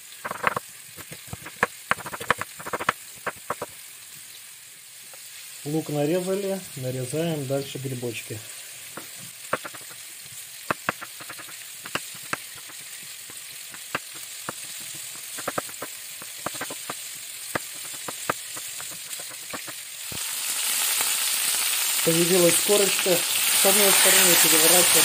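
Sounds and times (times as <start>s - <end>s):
faint steady sizzle: 0.0s - 25.0s
meat sizzling in oil: 0.0s - 25.0s
knife tapping on wooden board: 0.2s - 3.7s, 9.0s - 10.0s, 10.7s - 19.8s.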